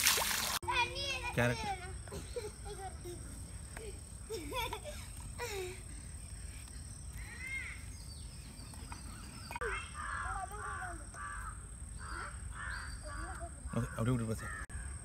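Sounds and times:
crows cawing: 0:09.6 - 0:15.0.

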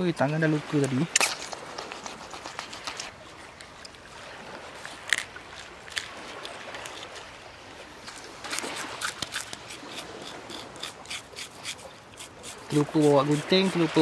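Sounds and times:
knife scraping fish scales: 0:01.1 - 0:03.1, 0:08.1 - 0:14.0.

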